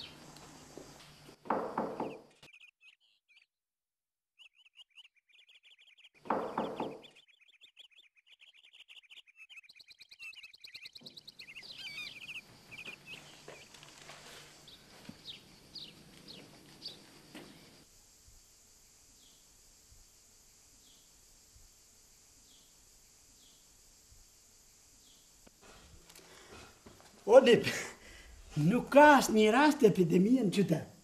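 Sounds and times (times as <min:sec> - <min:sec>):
small birds chirping: 0:00.0 - 0:03.5, 0:04.4 - 0:17.8, 0:19.1 - 0:19.6, 0:20.7 - 0:21.7, 0:22.4 - 0:24.2, 0:24.9 - 0:30.6
faint hiss: 0:11.2 - 0:31.0.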